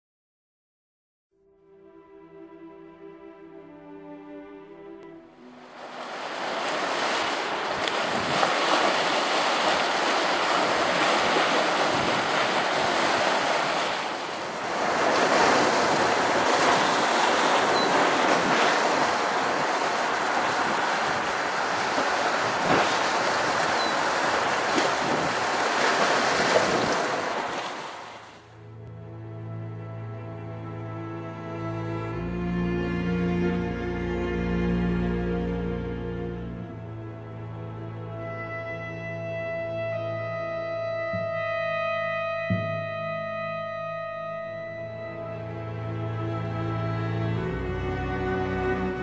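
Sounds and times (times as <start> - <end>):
waves washing onto rocky shore: 5.8 - 28.3.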